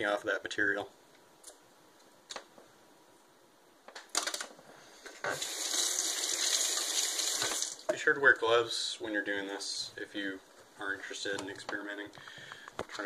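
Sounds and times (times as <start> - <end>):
faucet water running into sink: 5.3 - 7.8.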